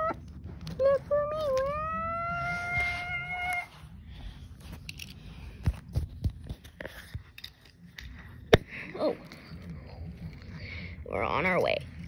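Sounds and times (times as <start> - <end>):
soft knocks and thumps on carpet: 5.6 - 6.8.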